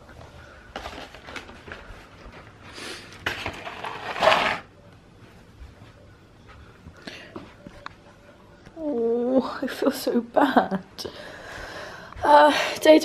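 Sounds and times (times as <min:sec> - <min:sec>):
cardboard rustling and scraping: 0:03.2 - 0:04.7.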